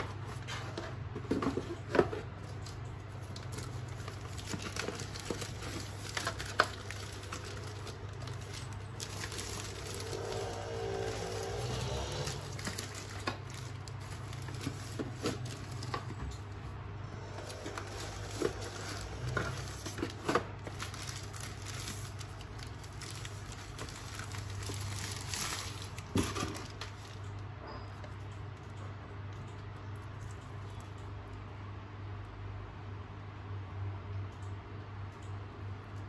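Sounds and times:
low steady hum: 0.0s - 36.0s
plastic wrapping crinkling: 1.3s - 27.5s.

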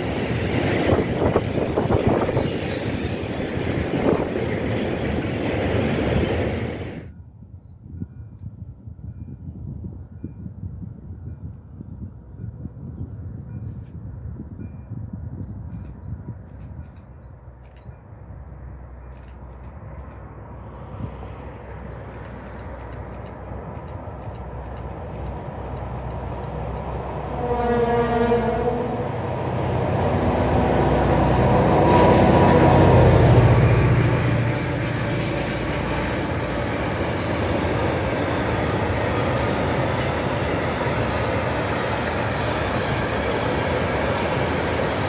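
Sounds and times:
train wagons wheel noise: 0.0s - 7.1s, 15.6s - 45.0s
diesel locomotive engine rumble: 0.0s - 45.0s
locomotive horn blast: 27.2s - 36.6s.

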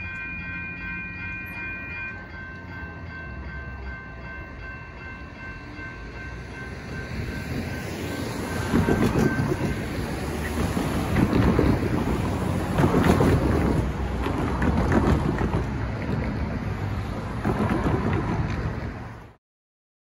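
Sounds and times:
cars driving past: 0.0s - 19.4s
wind buffeting microphone: 6.7s - 19.2s.

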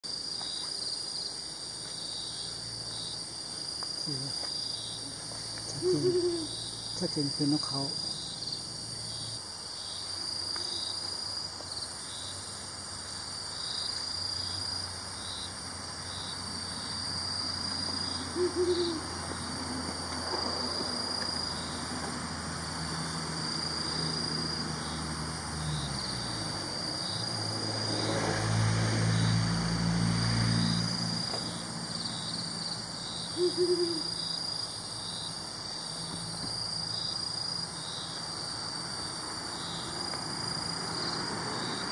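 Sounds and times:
crickets and insects chirping: 0.0s - 41.9s
owl hooting: 5.7s - 6.6s, 18.3s - 19.1s, 33.3s - 34.2s.

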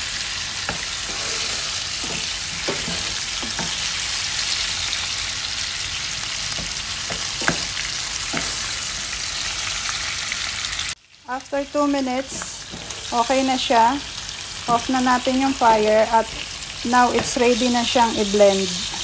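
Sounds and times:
vegetables sizzling in oil: 0.0s - 19.0s
wooden spatula scraping pan: 0.7s - 4.5s, 12.2s - 13.6s.

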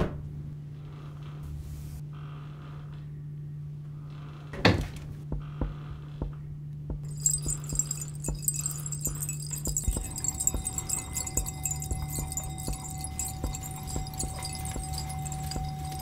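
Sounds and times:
low hum: 0.2s - 16.0s
high metallic jingling: 7.0s - 16.0s.

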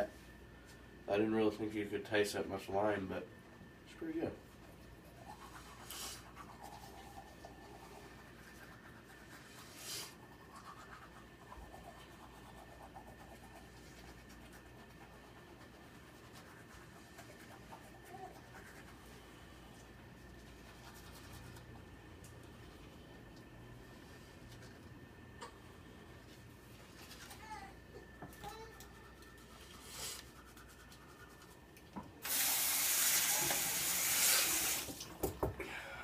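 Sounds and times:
toothbrush scrubbing teeth: 4.6s - 22.9s, 28.4s - 32.4s.

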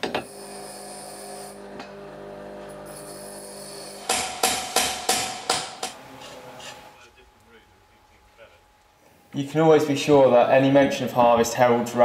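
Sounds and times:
steady hum: 0.1s - 12.0s
metal hammer blows: 3.9s - 6.0s.

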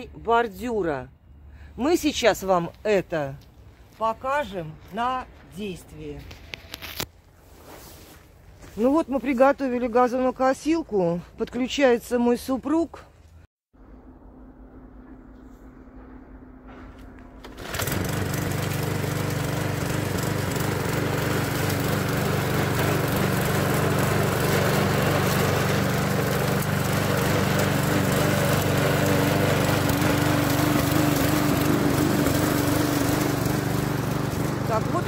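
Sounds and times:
lawn mower engine running: 17.2s - 35.0s.

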